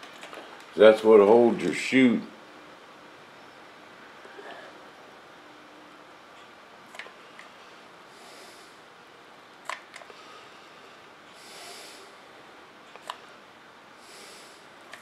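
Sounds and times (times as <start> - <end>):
soft breaths through the nose: 7.6 - 8.9, 10.1 - 12.2, 14.0 - 14.8
sharp small clicks: 9.6 - 10.2, 12.9 - 13.2.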